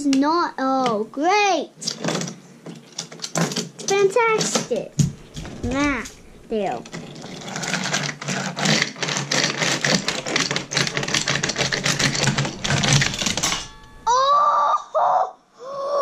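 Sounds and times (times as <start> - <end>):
rapid clattering and clicking: 1.8 - 14.1
child wailing: 14.1 - 16.0.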